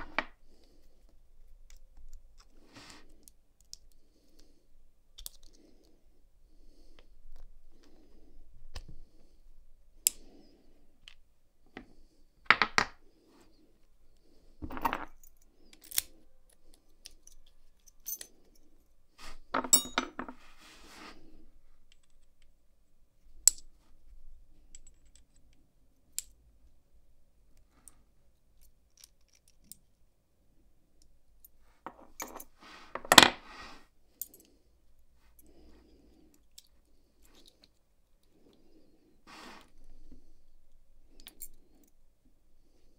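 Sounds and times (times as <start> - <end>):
padlock parts clicking: 5.1 - 5.6, 15.1 - 18.3, 28.5 - 30.0.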